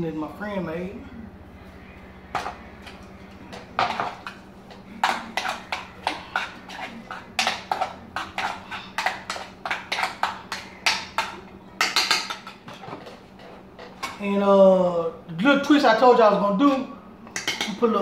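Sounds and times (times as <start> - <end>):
spoon scraping a metal saucepan: 2.3 - 11.3.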